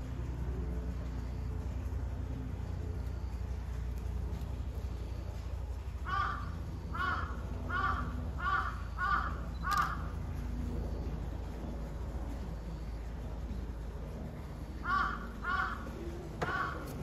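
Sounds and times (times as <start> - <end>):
low steady hum: 0.0 - 17.0
crow cawing: 6.0 - 10.1, 14.8 - 17.0.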